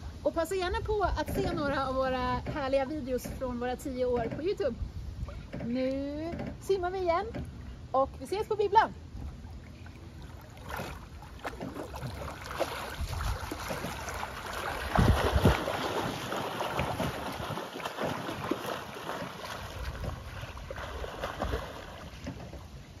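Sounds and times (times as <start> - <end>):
swimmers splashing in water: 9.3 - 22.7.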